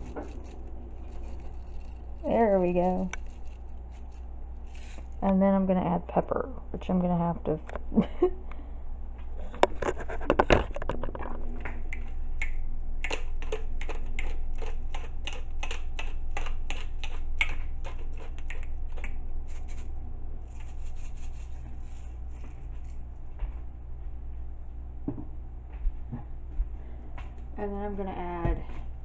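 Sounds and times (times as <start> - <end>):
pepper grinder crunching: 0.0 - 5.2, 12.4 - 19.9
low steady hum: 0.0 - 29.0.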